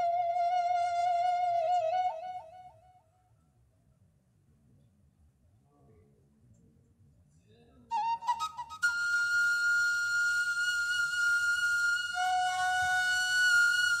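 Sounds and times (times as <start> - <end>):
flute music: 0.0 - 3.0, 7.9 - 14.0.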